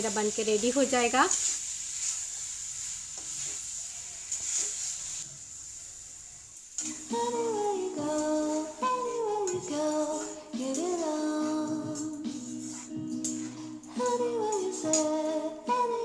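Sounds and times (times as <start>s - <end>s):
curry sizzling in a pan: 0.0s - 16.0s
music with singing: 6.8s - 16.0s.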